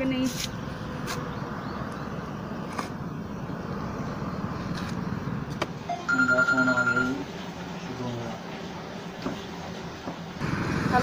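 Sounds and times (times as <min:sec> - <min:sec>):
outdoor background noise: 0:00.0 - 0:11.0
mobile phone ringtone: 0:05.9 - 0:07.2.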